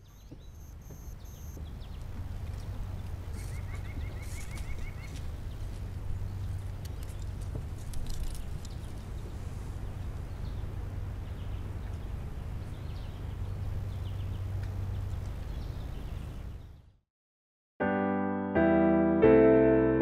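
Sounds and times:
faint bird chirps: 0.0 - 1.7.

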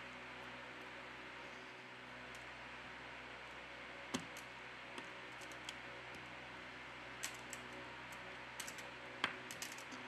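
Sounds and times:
small sharp clicks of parts: 4.1 - 6.2, 7.2 - 10.0.

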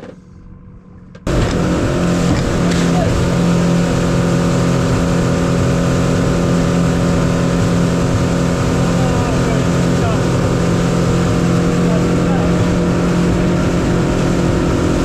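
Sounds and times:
outboard motor drone: 0.0 - 15.0
water rushing from wake: 1.3 - 15.0.

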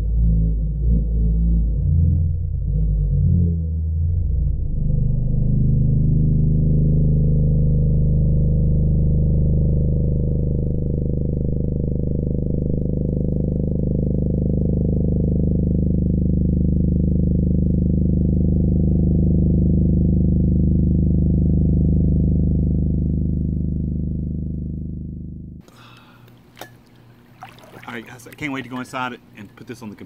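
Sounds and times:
muffled air horn underwater: 0.0 - 25.6.

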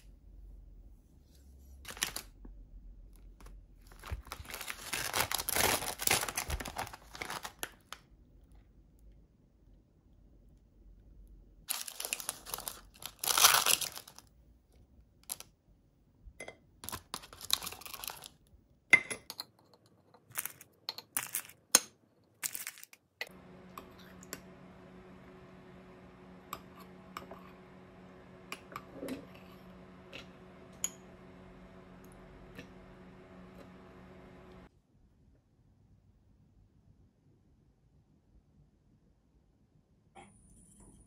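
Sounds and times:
plastic pouch crinkling and tearing: 1.9 - 2.3, 3.8 - 8.0, 11.7 - 14.3, 16.8 - 18.4
steady low hum: 23.2 - 34.7.

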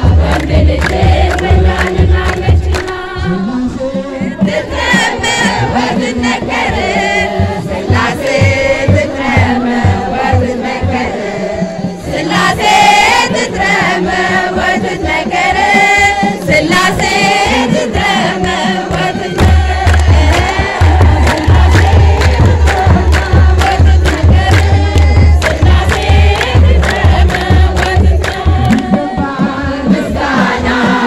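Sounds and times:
hand clapping: 0.0 - 3.0, 18.4 - 29.0
drum beats: 0.0 - 31.0
group singing a hymn: 0.0 - 31.0.

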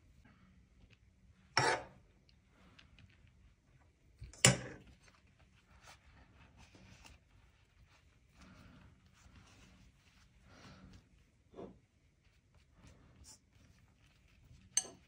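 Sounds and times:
metal spoon clanking on pan: 4.4 - 4.8, 14.8 - 15.0
pastry sheets rustling: 4.9 - 15.0.

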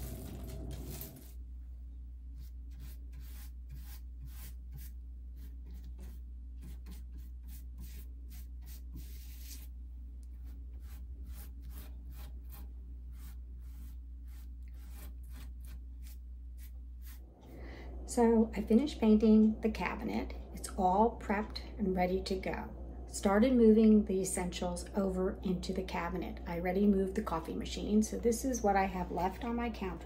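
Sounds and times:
scratchy brush strokes: 0.0 - 1.4, 2.3 - 17.6
steady low hum: 0.0 - 30.0.

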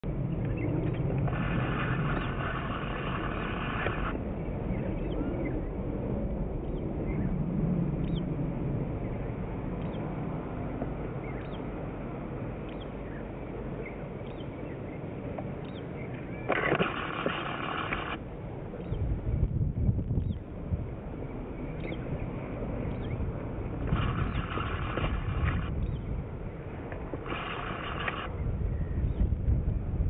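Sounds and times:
steady low rumble: 0.0 - 30.0
wind on microphone: 0.0 - 30.0
small birds chirping: 0.3 - 5.8, 6.6 - 7.4, 8.0 - 8.3, 9.0 - 10.1, 11.1 - 11.7, 12.6 - 20.5, 21.2 - 26.6.

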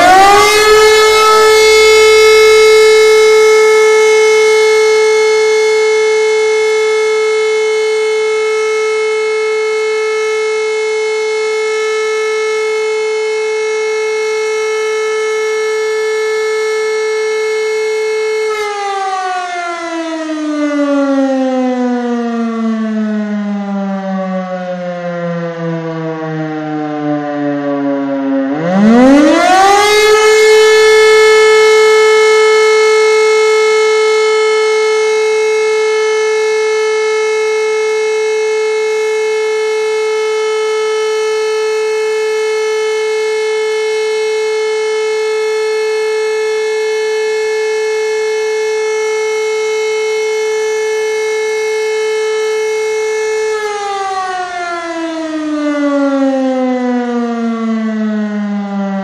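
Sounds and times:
rotary siren: 0.0 - 59.0.

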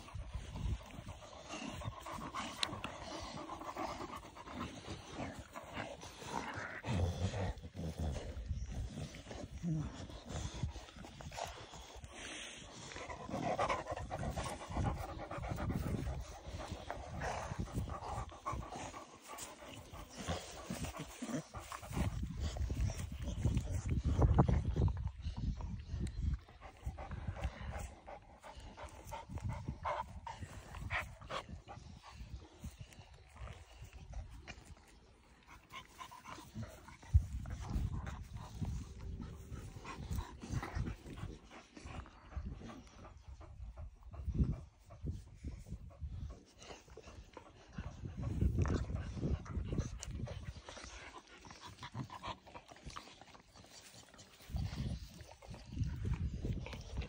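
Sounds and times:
dogs panting and snuffling: 0.0 - 57.0.

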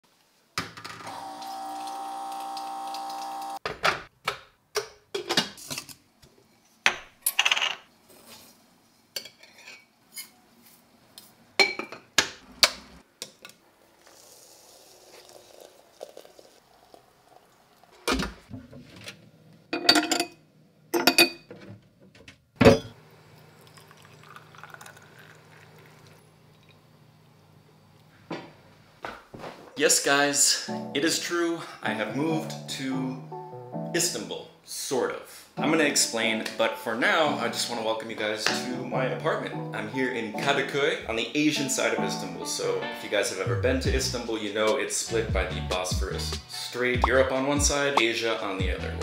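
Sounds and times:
water dispenser pump whirring: 1.0 - 3.6
tea pouring into glass: 14.1 - 18.0, 23.4 - 26.8
glass and metal clinking: 23.6 - 25.6.

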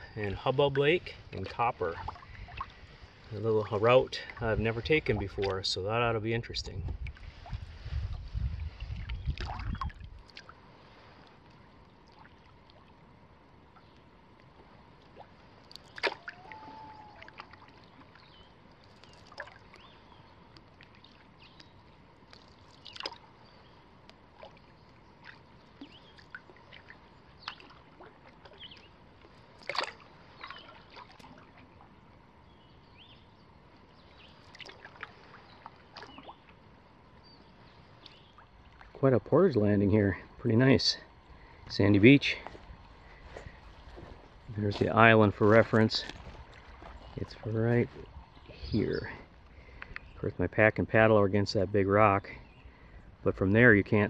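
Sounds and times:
paddle splashing in water: 1.2 - 5.6, 6.9 - 13.0, 13.7 - 32.1, 33.8 - 39.0, 42.4 - 48.6.

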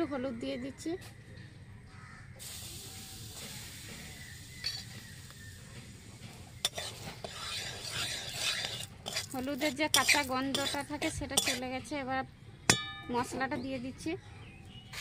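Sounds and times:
spice sizzling in hot oil: 2.4 - 11.6
metal spatula clinking on pan: 4.6 - 5.0, 6.6 - 11.6, 12.7 - 13.2.

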